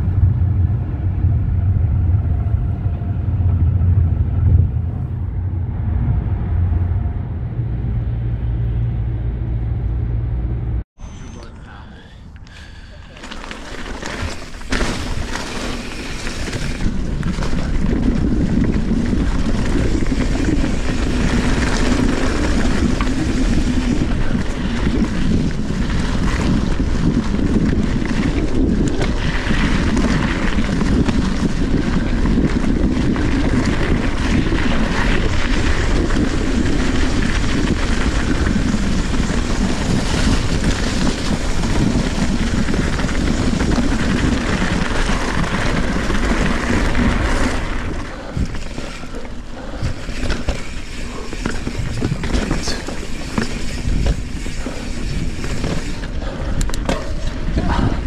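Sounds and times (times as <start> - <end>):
wind buffeting the microphone: 0.0 - 9.2, 16.3 - 58.0
steady low rumble: 0.0 - 13.1.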